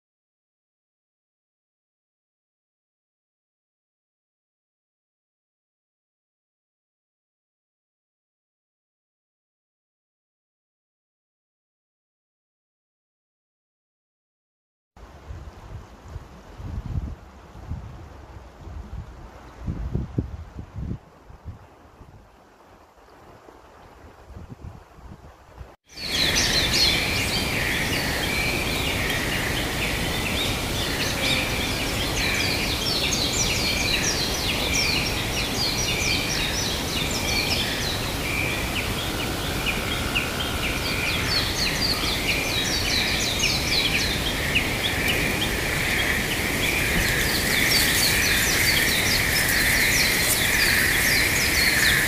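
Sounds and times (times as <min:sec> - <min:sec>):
steady background hiss: 0:15.0 - 0:52.0
small birds chirping and singing: 0:25.9 - 0:52.0.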